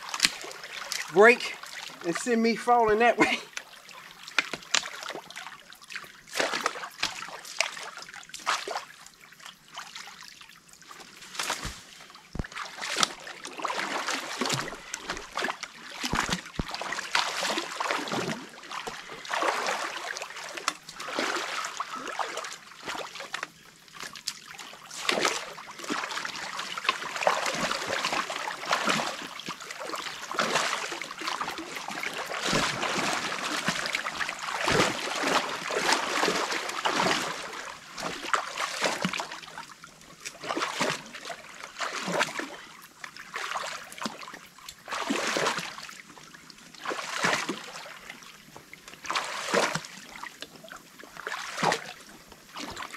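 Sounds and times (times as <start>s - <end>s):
water trickling and splashing: 0.0s - 52.9s.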